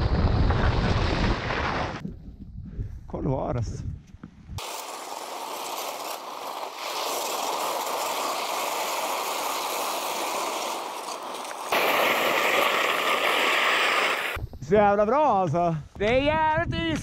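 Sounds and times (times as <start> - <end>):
skis sliding over icy snow: 0.1 - 2.0, 4.6 - 14.4.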